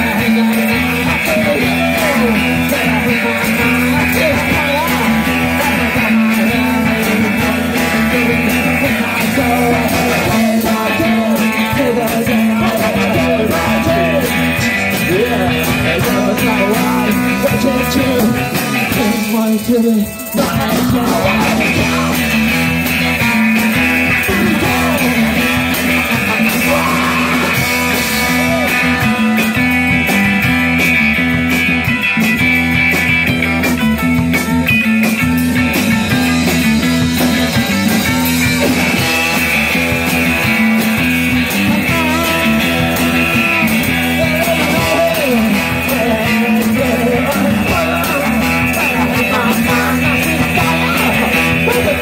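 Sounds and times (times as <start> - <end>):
live band playing: 0.0 - 52.0
trombone solo: 25.8 - 27.3.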